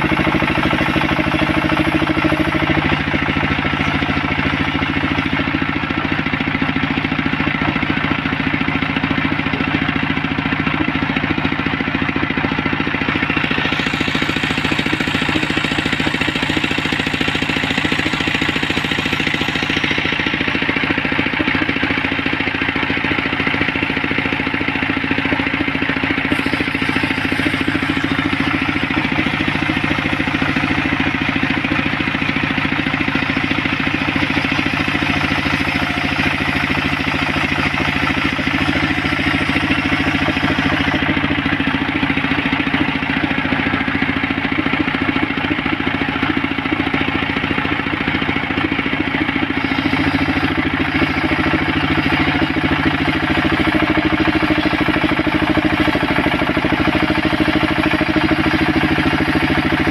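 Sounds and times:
circular saw cutting wood: 0.0s - 7.0s, 13.0s - 44.3s, 47.0s - 59.9s
engine hum: 0.0s - 59.9s.

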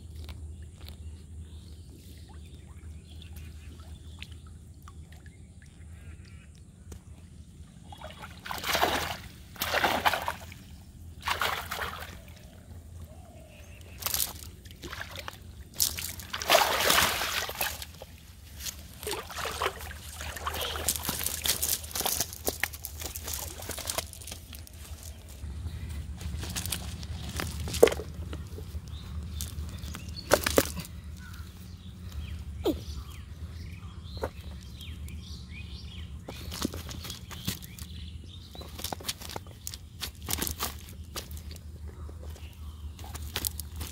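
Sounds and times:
birds chirping: 0.0s - 43.9s
steady low hum: 0.0s - 43.9s
water sloshing and splashing: 0.1s - 32.3s, 36.2s - 43.9s
fish flapping against a net: 20.4s - 24.7s.

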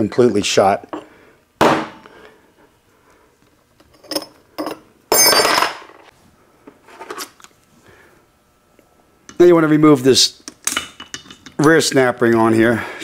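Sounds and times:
metal parts clinking: 3.8s - 6.0s.

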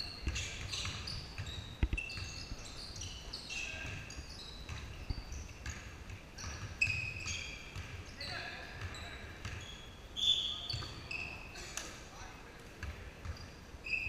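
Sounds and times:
sneakers squeaking on floor: 0.0s - 12.0s, 12.8s - 14.0s
basketball bouncing on wooden floor: 0.2s - 2.4s, 3.8s - 8.0s.

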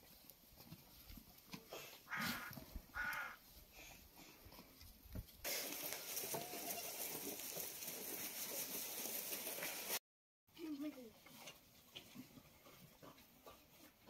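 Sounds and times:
goat kid bleating: 2.1s - 3.4s, 6.3s - 7.2s.

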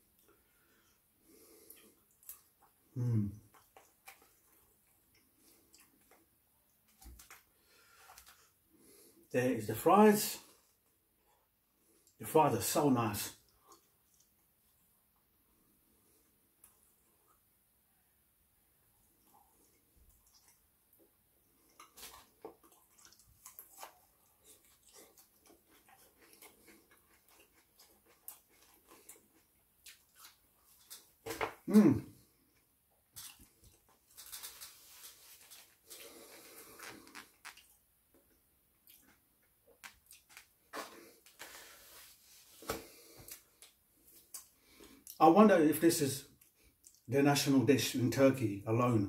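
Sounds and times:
person chewing with mouth open: 1.5s - 7.5s, 19.1s - 31.2s, 32.2s - 41.5s.

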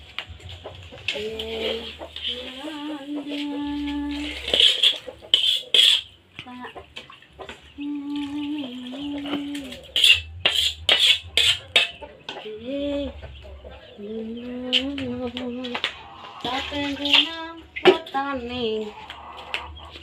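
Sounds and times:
metal spatula scraping a wok: 4.1s - 6.2s, 9.9s - 12.0s.

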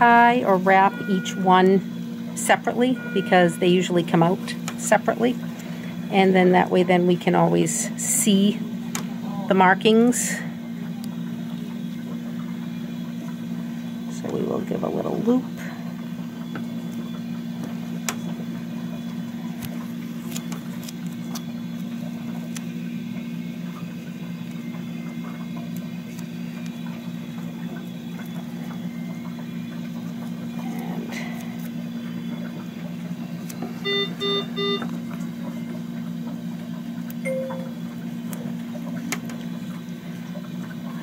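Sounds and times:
hospital equipment hum: 0.0s - 41.0s
clicks and rustles of tape: 19.6s - 22.7s
short electronic beeps: 33.8s - 34.9s, 37.3s - 37.8s.

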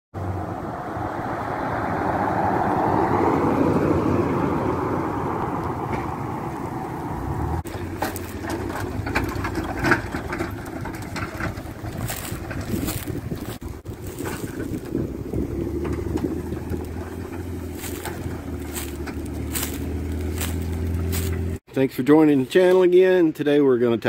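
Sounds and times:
car driving past: 0.2s - 21.6s
crackles and thumps: 7.6s - 21.6s.

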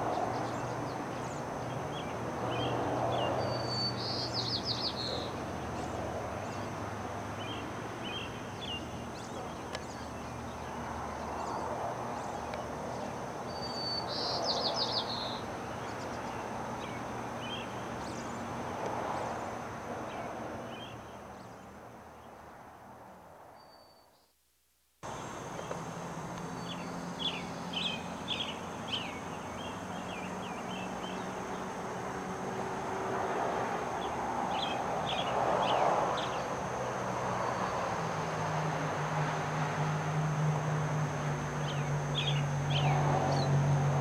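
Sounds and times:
soft bird chirps: 0.3s - 6.7s, 12.2s - 18.4s, 23.6s - 24.4s
songbird whistle and trill: 3.4s - 5.4s, 13.5s - 15.4s.

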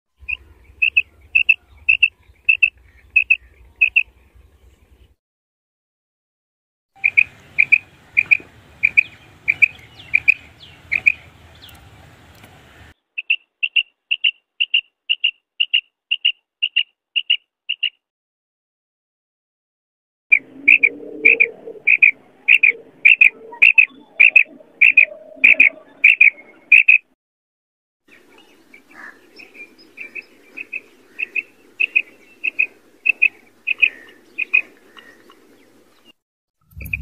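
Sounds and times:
quail calling: 0.2s - 4.2s, 7.0s - 11.8s, 13.2s - 18.0s, 20.3s - 27.1s, 28.1s - 35.6s
outdoor hiss: 7.3s - 13.0s
high chirps: 20.3s - 27.0s.

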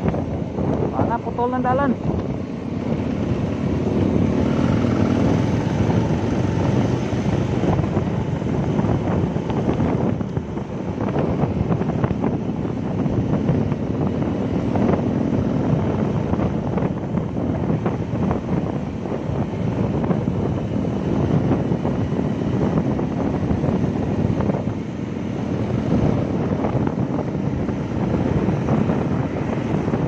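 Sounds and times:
motorcycle cruising: 0.0s - 30.0s
road noise: 0.0s - 30.0s
wind rushing over microphone: 0.0s - 30.0s.

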